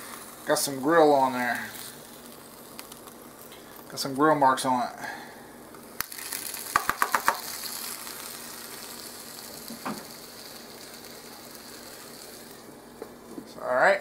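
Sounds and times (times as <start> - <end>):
chicken sizzling in grill pan: 0.0 - 13.8
spatula tapping pan: 6.7 - 7.6.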